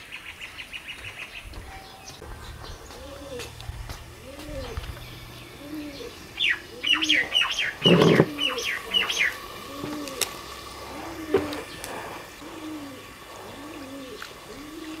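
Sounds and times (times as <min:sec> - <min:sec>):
dove cooing: 0:02.9 - 0:15.0
bird chirping: 0:04.2 - 0:10.1.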